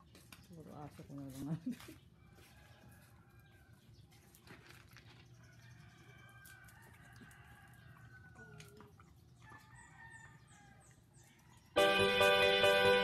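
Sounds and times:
loud background music: 11.8 - 13.0.

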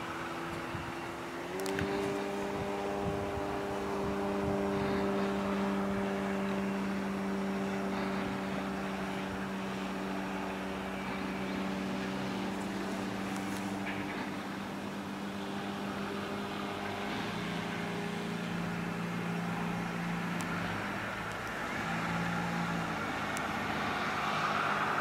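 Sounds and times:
model plane propeller droning: 0.0 - 25.0.

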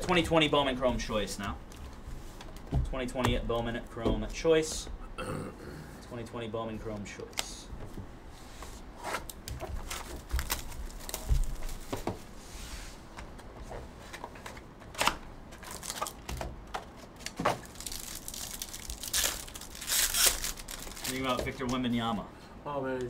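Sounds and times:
cardboard knocks and taps: 2.5 - 5.0
wrapping crinkling and tearing: 9.3 - 11.9, 15.6 - 21.8.

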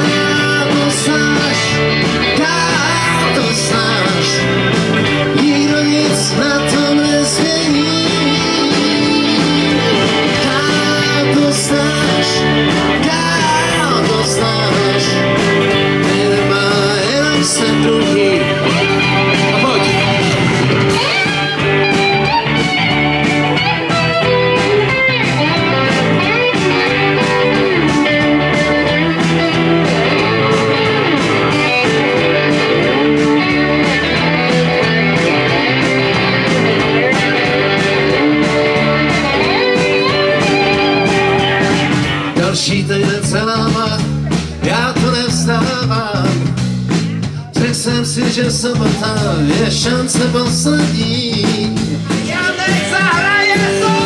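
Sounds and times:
electric guitar lead solo: 0.0 - 13.0, 13.6 - 42.4
bass guitar: 0.0 - 54.0
rock drums: 0.0 - 54.0.

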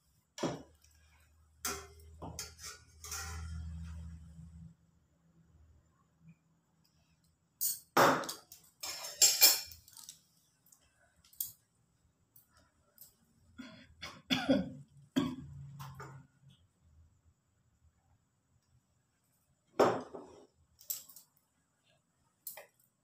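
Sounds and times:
dishes and utensils clinking: 1.6 - 3.9, 7.6 - 10.1.

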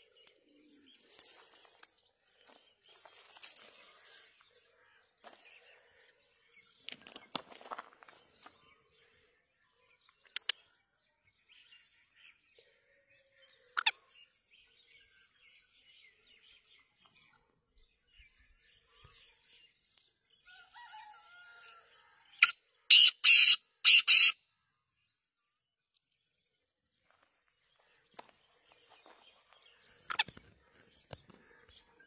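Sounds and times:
bird calling loud notes: 22.4 - 24.4.

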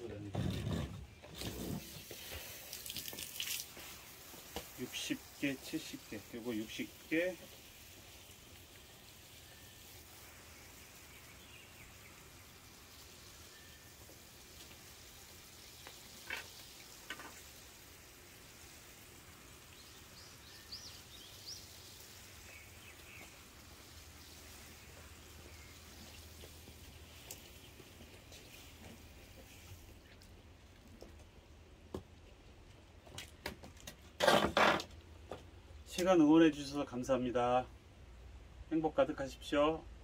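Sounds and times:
water spraying from a hose: 0.1 - 31.2.

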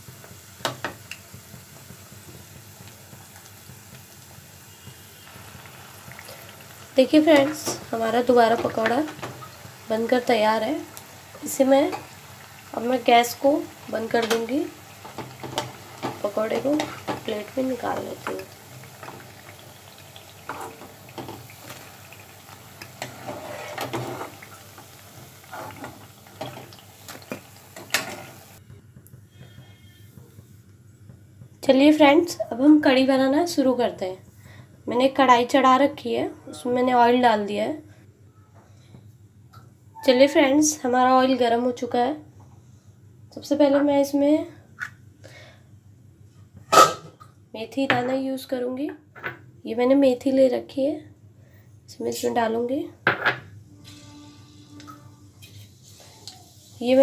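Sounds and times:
food frying in hot oil: 0.0 - 28.6, 55.4 - 57.0
utensil scraping against pan: 23.0 - 24.4, 25.4 - 26.6.

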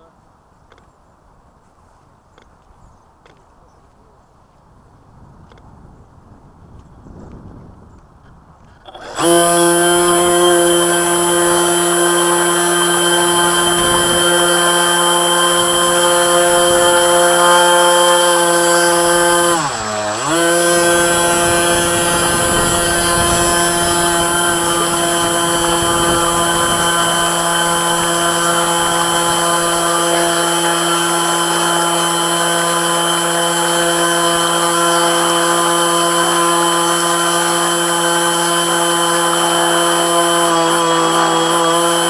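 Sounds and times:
electric motor whining: 8.8 - 42.0.

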